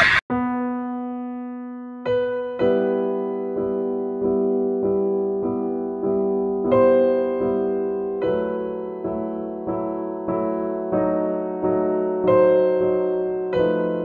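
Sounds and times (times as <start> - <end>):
slow piano music: 0.3 - 14.0.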